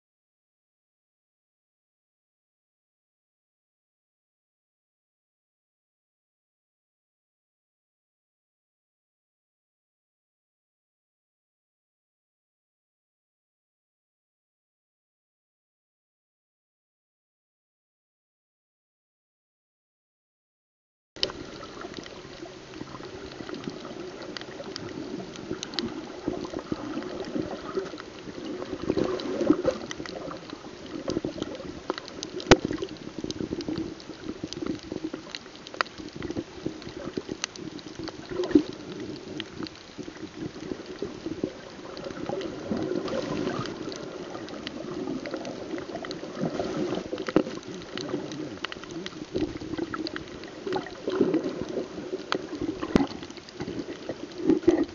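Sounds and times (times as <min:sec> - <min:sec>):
underwater sloshing and bubbling: 0:21.2 - 0:54.9.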